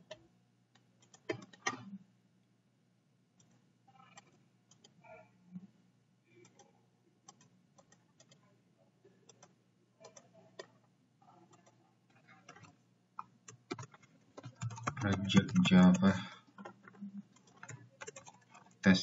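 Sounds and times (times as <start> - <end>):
low electrical hum: 0.0 - 19.0
computer mouse clicks: 1.0 - 2.0, 3.4 - 5.0, 6.4 - 8.4, 9.3 - 10.8, 11.4 - 18.8.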